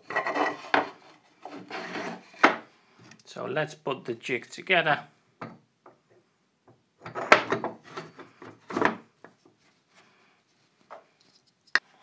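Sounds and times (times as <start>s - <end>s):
wood knocking and scraping: 0.0s - 3.2s, 6.7s - 9.7s.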